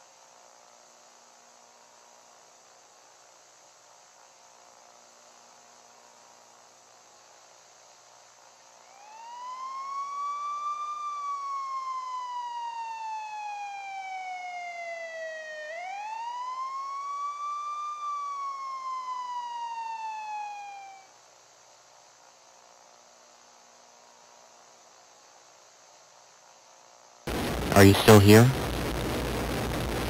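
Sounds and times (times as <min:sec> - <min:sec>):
faint steady hum and hiss: 0:00.0 - 0:30.0
siren wailing: 0:08.9 - 0:21.1.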